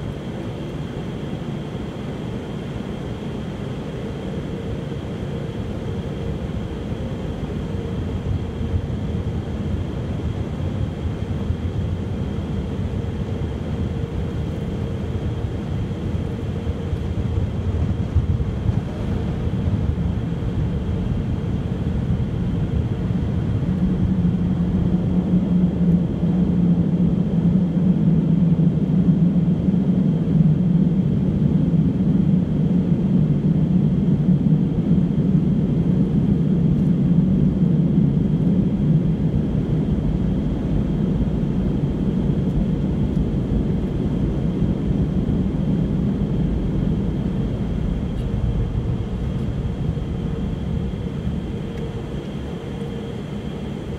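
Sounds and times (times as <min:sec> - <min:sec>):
low rumble inside car: 0:33.0 - 0:53.9.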